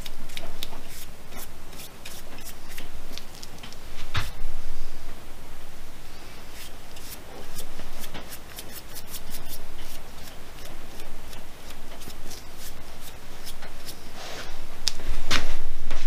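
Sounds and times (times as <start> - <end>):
brush rubbing on wooden mug: 0.8 - 2.9, 6.4 - 14.6.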